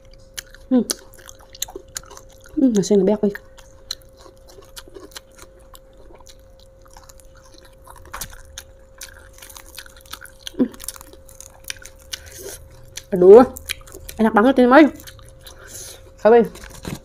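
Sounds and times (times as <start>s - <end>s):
mouth chewing with crunches: 0.0s - 17.0s.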